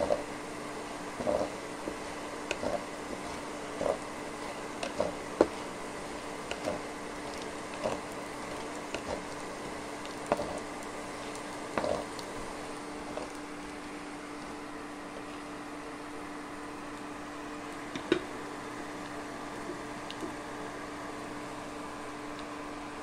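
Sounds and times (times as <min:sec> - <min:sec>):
induction cooktop hum: 0:00.0 - 0:23.0
spatula scraping a frying pan: 0:01.2 - 0:13.2.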